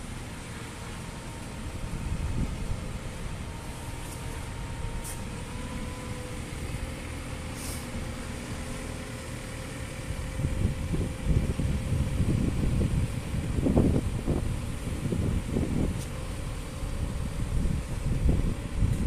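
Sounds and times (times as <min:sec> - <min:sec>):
diesel engine running: 0:00.0 - 0:19.0
thin steady whine: 0:00.0 - 0:19.0
wind noise on microphone: 0:01.6 - 0:07.0, 0:10.0 - 0:19.0
short hisses: 0:07.5 - 0:08.0.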